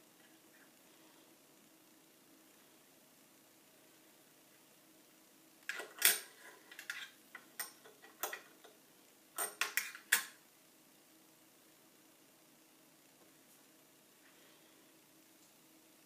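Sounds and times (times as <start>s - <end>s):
light metallic clicks and scrapes: 5.7s - 8.7s.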